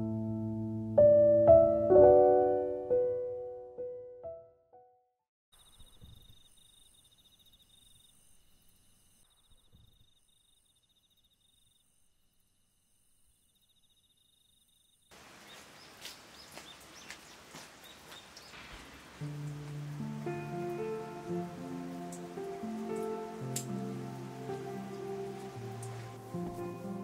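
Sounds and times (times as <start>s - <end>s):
insects chirping in trills: 5.6s - 16.0s
soft outdoor hiss: 5.6s - 27.0s
rain pattering: 15.2s - 27.0s.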